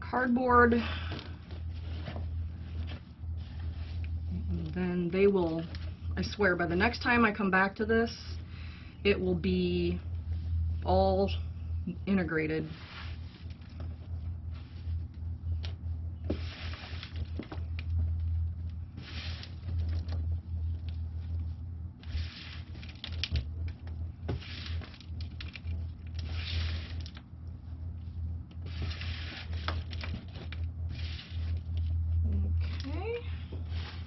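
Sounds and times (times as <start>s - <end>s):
steady low hum: 0.0s - 34.0s
rustling and scraping of worm castings: 12.6s - 32.0s.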